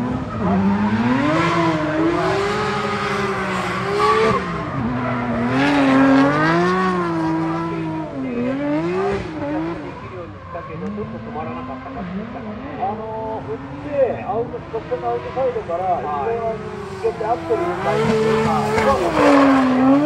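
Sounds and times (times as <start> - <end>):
car engine revving: 0.0 - 20.0.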